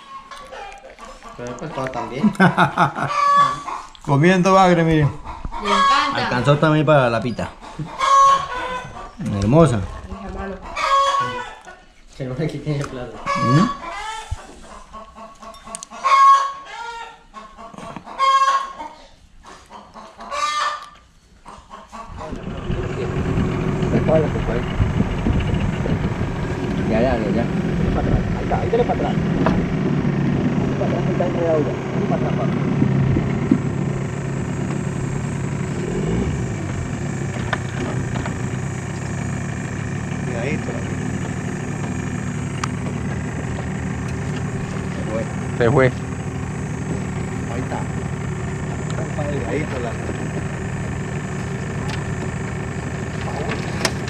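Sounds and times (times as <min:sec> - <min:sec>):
bird calling loudly: 0:05.1 - 0:06.6, 0:07.2 - 0:11.7, 0:13.1 - 0:19.1
engine running: 0:22.0 - 0:54.0.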